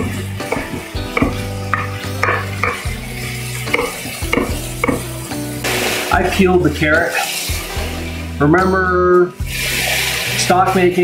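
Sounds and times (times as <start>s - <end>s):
knife chopping on wooden board: 0.0s - 2.8s, 3.7s - 5.0s
vegetables sizzling in a pot: 0.0s - 11.0s.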